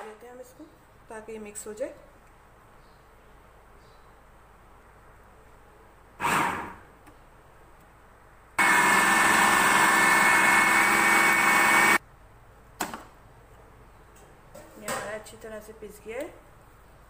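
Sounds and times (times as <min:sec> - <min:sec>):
food processor motor grinding: 0:06.2 - 0:06.8, 0:08.6 - 0:12.0.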